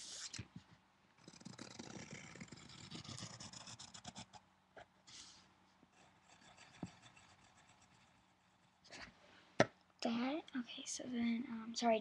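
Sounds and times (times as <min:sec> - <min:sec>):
pencil scratching on paper: 0:01.2 - 0:04.4, 0:05.1 - 0:08.8.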